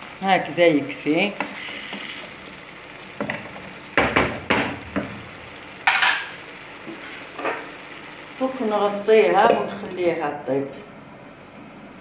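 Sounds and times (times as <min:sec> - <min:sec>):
food sizzling: 0:00.0 - 0:12.0
spatula scraping and knocking pan: 0:05.8 - 0:07.7.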